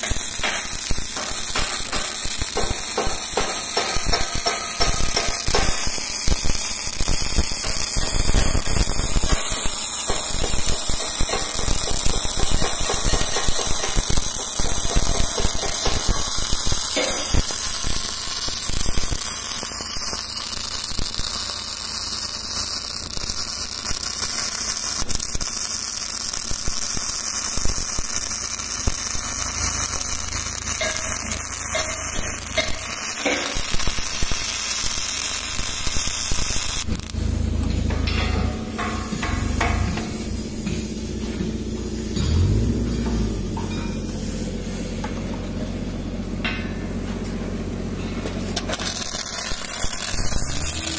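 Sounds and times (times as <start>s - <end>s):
welding arc crackling: 0.0s - 47.0s, 48.3s - 50.9s.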